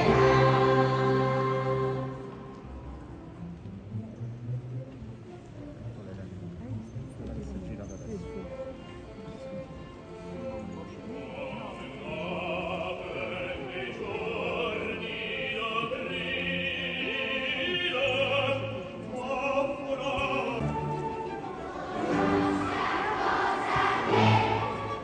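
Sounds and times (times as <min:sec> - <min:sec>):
operatic singing with vibrato: 0:00.0 - 0:02.6, 0:11.1 - 0:25.0
classical orchestral music: 0:00.0 - 0:25.0.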